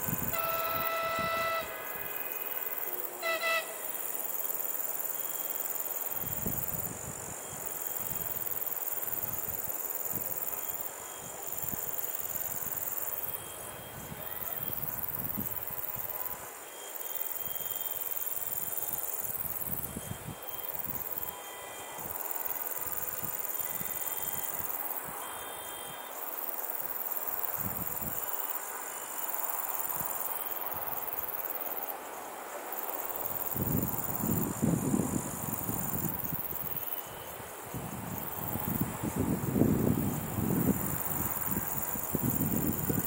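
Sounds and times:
wind rumble on microphone: 0.0s - 1.8s, 27.6s - 28.2s, 33.3s - 36.8s, 37.4s - 43.0s
distant train horn: 0.0s - 4.2s
insect chirring: 0.0s - 43.0s.

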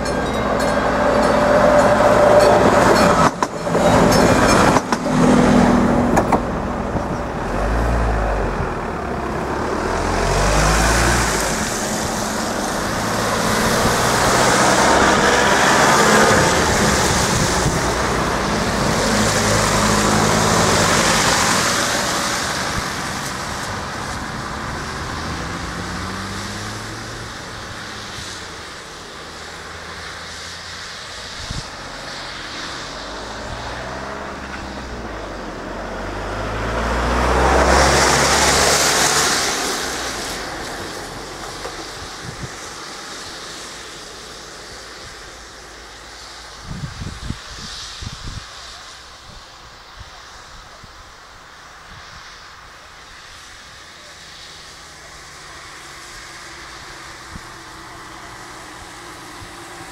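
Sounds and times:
tyres hissing on wet road: 0.0s - 59.9s
train wheels knocking on rail joints: 0.1s - 7.2s.

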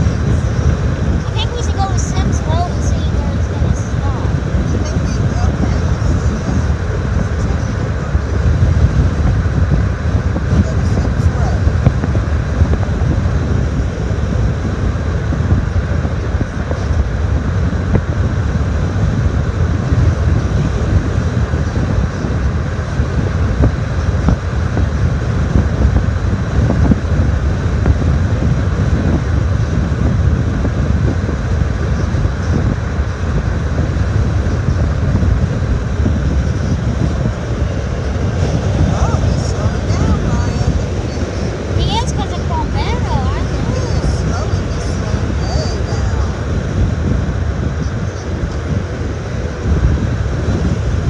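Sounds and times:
car road and wind rumble: 0.0s - 51.0s.

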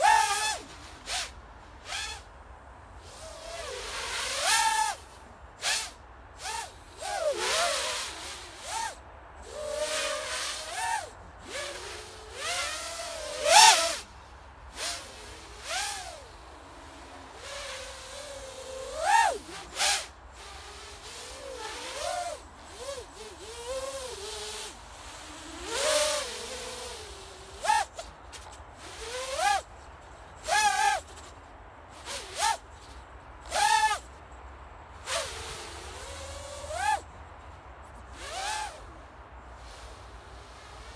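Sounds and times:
quadcopter motors whining: 0.0s - 2.2s, 3.1s - 14.1s, 14.8s - 28.0s
rush of propeller air: 38.1s - 40.9s.

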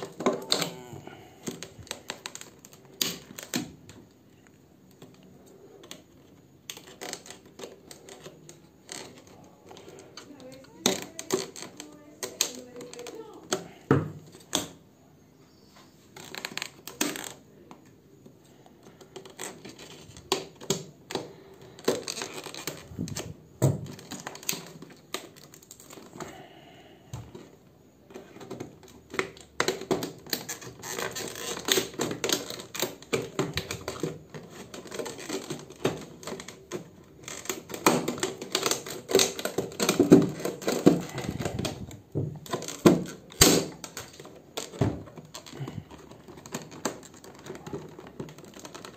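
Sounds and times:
hard plastic crackling: 0.0s - 15.0s, 16.0s - 48.9s
scissors snipping plastic: 6.7s - 13.8s, 28.2s - 48.9s.

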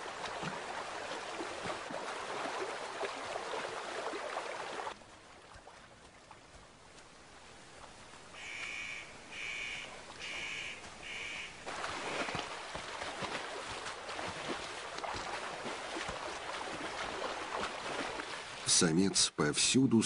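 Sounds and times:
animals splashing through river: 0.0s - 19.1s
bird calling: 8.4s - 12.4s.

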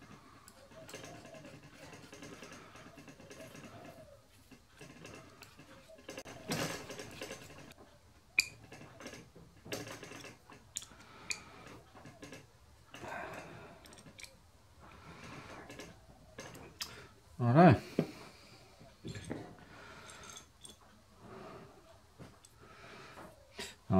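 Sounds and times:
steel parts scraping and clicking: 0.0s - 14.4s.

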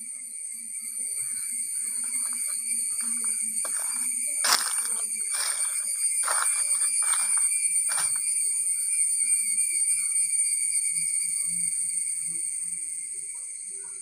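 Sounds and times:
high-pitched insect buzzing: 0.0s - 14.0s
crunching rustles: 1.8s - 8.4s.

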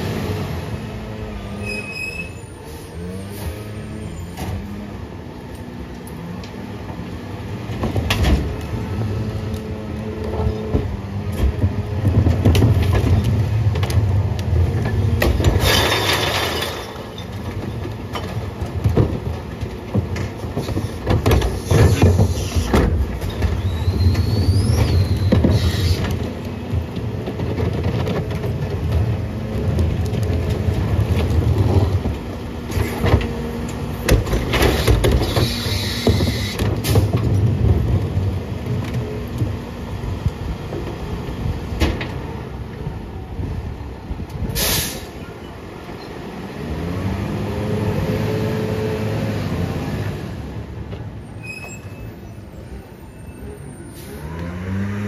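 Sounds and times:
clanks and knocks of cart: 7.6s - 44.6s
waste falling into hopper: 15.2s - 17.4s
diesel engine revving: 46.2s - 50.6s, 53.9s - 55.0s.

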